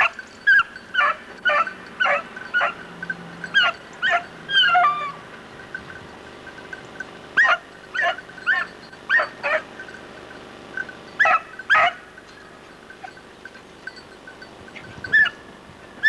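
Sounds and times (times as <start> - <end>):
dog yelping: 0.0 - 5.2, 7.4 - 9.7, 11.2 - 12.1, 15.0 - 15.5.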